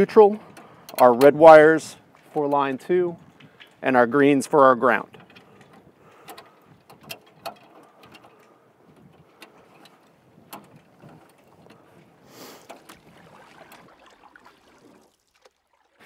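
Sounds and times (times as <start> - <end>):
wires clicking and knocking: 4.7 - 11.9.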